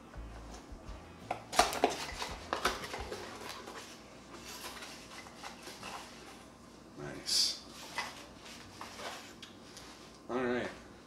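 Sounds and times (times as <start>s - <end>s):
paper packaging crinkling: 1.5s - 6.3s.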